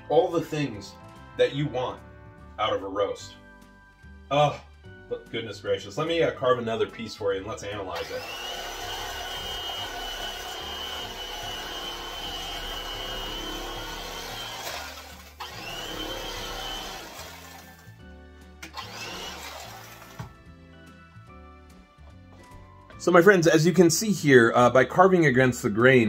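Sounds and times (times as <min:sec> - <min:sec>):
light background music: 0:00.0 - 0:26.0
electric carving knife whine: 0:08.0 - 0:17.9, 0:18.6 - 0:20.2.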